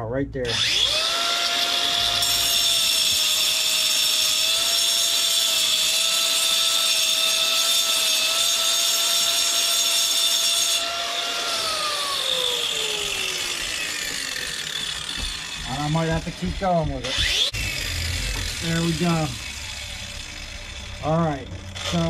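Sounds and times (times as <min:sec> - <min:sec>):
angle grinder grinding stone: 0:00.4 - 0:22.0
grinder disc spinning down: 0:10.8 - 0:22.0.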